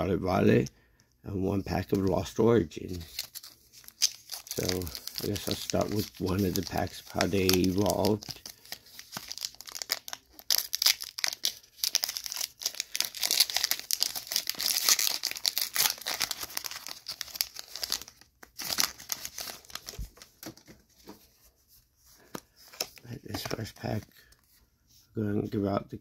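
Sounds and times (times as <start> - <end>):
foil wrapper crinkling and tearing: 2.8 - 20.6.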